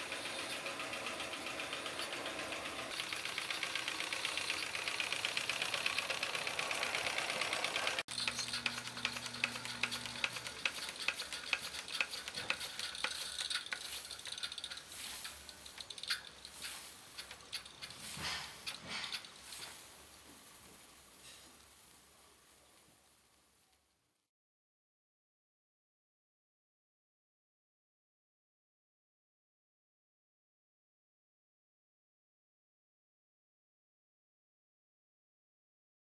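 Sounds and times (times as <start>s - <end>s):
toy steam engine clatter: 0.0s - 20.0s.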